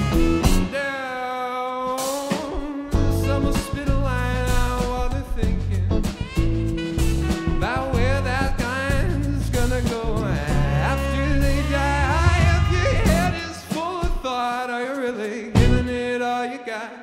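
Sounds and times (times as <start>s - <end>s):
bass line: 0.0s - 1.0s, 2.4s - 14.3s, 15.6s - 16.2s
funk band playing: 0.0s - 16.4s
person singing: 0.5s - 6.2s, 7.5s - 17.0s.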